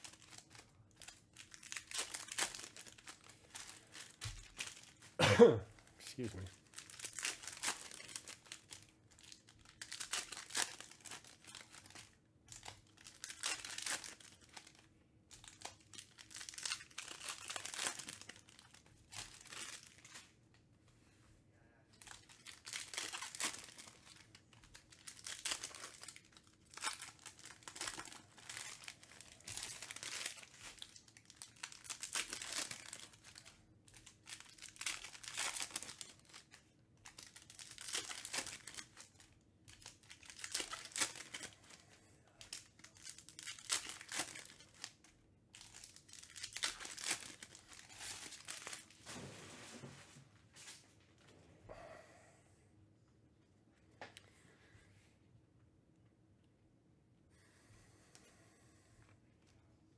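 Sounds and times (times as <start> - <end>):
wrappers tearing and crinkling: 0.0 - 5.2, 6.1 - 20.4, 22.0 - 49.2.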